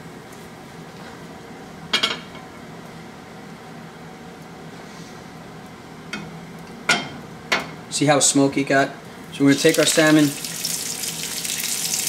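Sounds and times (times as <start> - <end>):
kitchen equipment hum: 4.7 - 12.0.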